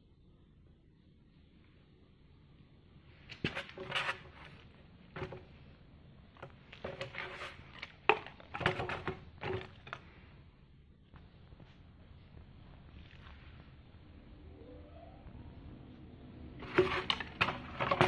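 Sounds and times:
plastic props clattering and rustling: 0:03.3 - 0:05.7, 0:06.3 - 0:10.2, 0:16.6 - 0:18.0.

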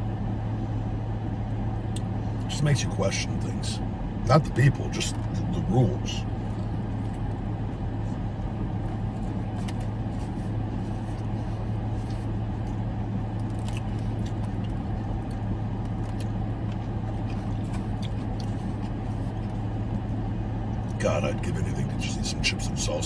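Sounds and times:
car engine idling hum: 0:00.0 - 0:23.0
chewing sandwich: 0:08.1 - 0:20.2.

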